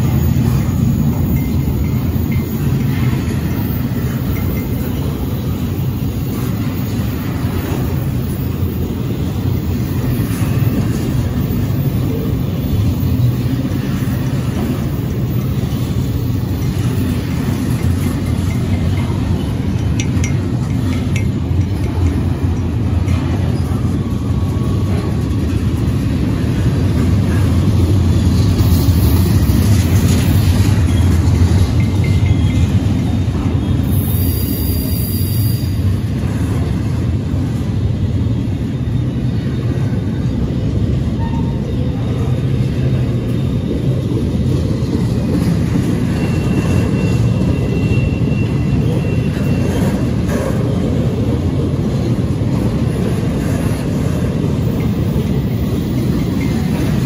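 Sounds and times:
freight train rolling past: 0:00.0 - 0:57.0
wheel squeals and clicks: 0:45.4 - 0:50.8.

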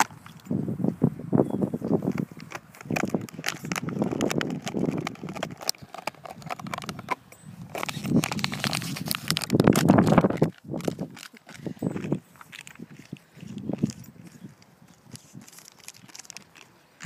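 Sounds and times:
dog scuffling clicks and knocks: 0:02.1 - 0:12.8.

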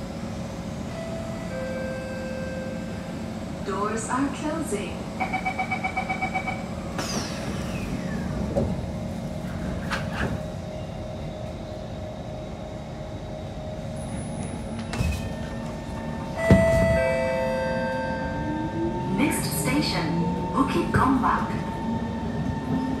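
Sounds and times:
train doors sliding shut: 0:06.9 - 0:10.6, 0:14.1 - 0:18.1.

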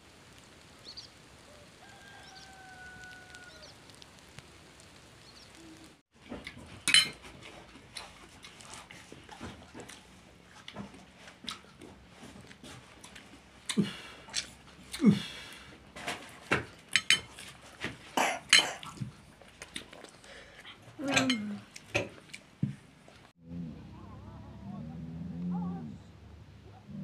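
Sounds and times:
background hiss: 0:00.0 - 0:06.0, 0:10.2 - 0:23.3
drawn-out animal call: 0:01.1 - 0:04.1
spoon scraping ceramic plate: 0:06.8 - 0:07.3, 0:17.0 - 0:17.4.

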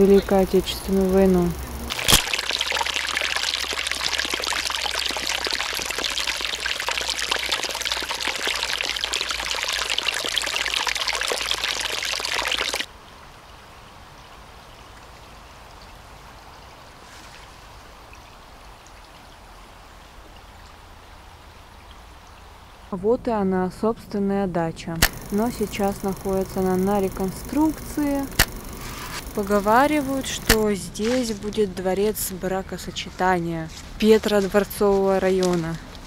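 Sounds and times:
stream trickling over stones: 0:00.0 - 0:22.7, 0:25.0 - 0:32.9
faint steady hush: 0:25.0 - 0:30.7.

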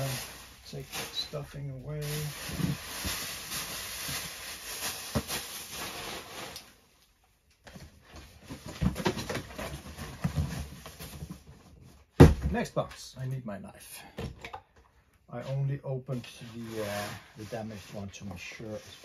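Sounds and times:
plastic packing rustling: 0:00.0 - 0:06.8, 0:16.2 - 0:19.0.

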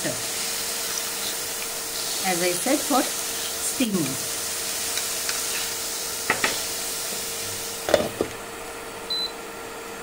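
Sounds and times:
water sizzling on hot griddle: 0:00.0 - 0:08.0
utensil knocks: 0:07.8 - 0:08.4.

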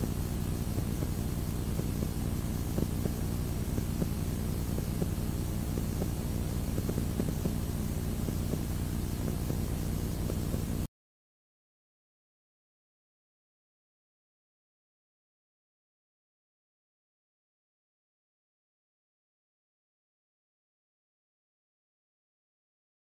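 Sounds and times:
low rumble with hiss: 0:00.0 - 0:10.9.

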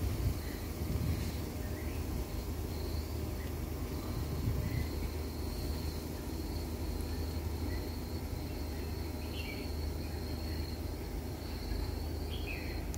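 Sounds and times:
high-pitched insect trill: 0:00.0 - 0:12.9
bird chirps: 0:07.1 - 0:10.8, 0:11.4 - 0:12.9.

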